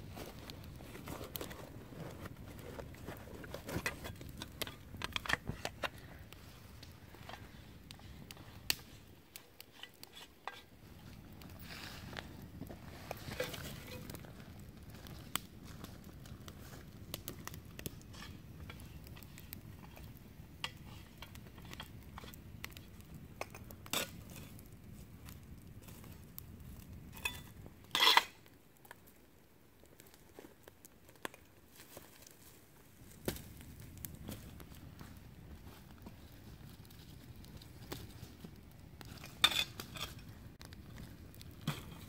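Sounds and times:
campfire crackling: 0.0 - 42.0.

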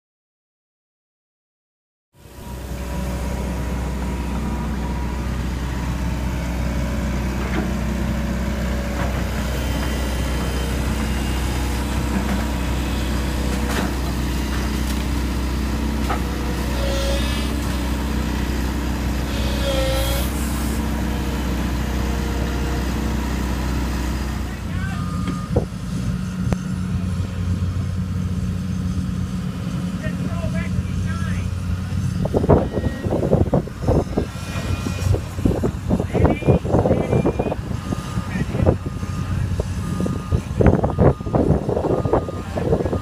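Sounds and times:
excavator diesel engine running: 2.2 - 43.0
short squeals: 16.2 - 18.1, 19.1 - 20.9.

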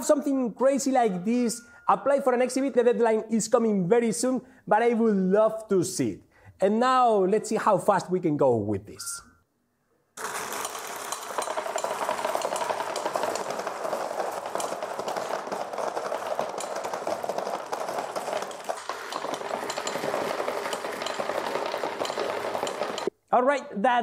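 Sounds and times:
metal marbles clattering: 10.2 - 23.1.

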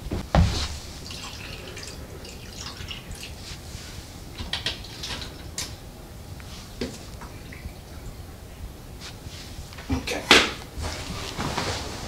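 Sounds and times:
water dripping into metal tank: 1.0 - 3.4.

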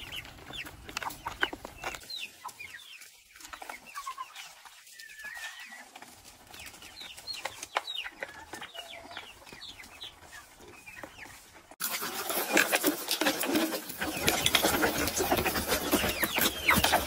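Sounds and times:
chickens clucking: 0.0 - 17.0
beaks pecking rice on plastic tray: 11.8 - 17.0.

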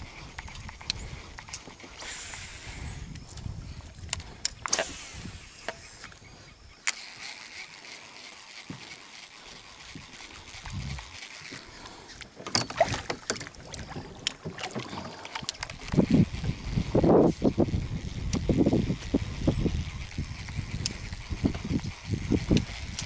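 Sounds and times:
clicks and knocks on plastic boat: 12.4 - 15.8.

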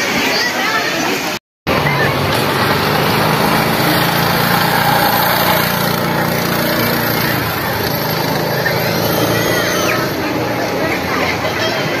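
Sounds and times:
go-kart engine running: 1.7 - 12.0.

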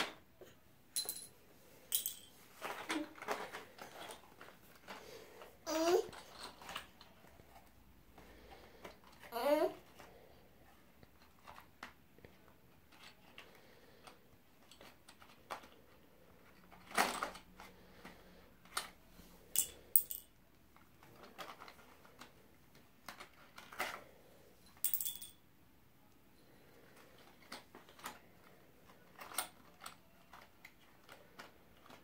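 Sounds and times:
pencils clattering in a box: 1.9 - 7.8, 11.0 - 24.1, 26.7 - 32.0.

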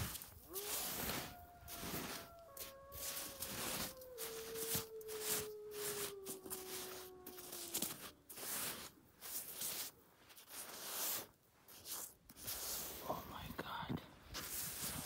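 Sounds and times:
brush scrubbing rusty metal: 8.3 - 13.0.

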